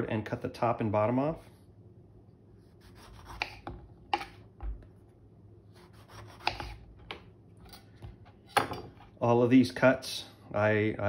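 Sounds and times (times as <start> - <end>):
knife cutting grapefruit rind: 2.6 - 4.8, 5.7 - 7.9.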